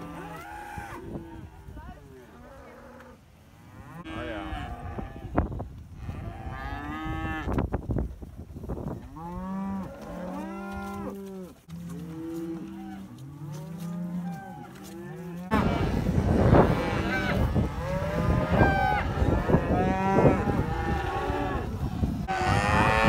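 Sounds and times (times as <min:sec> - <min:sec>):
cattle mooing: 0:09.1 - 0:23.0.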